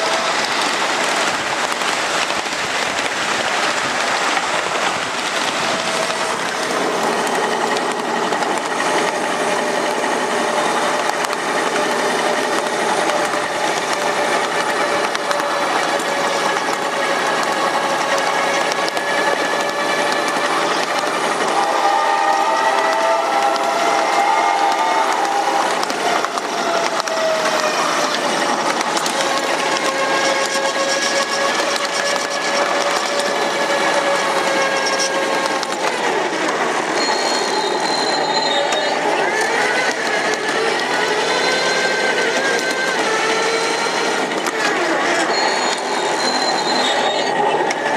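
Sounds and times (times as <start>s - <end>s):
high steady whine: 0.0s - 47.9s
train wheels clattering on rails: 0.0s - 47.9s.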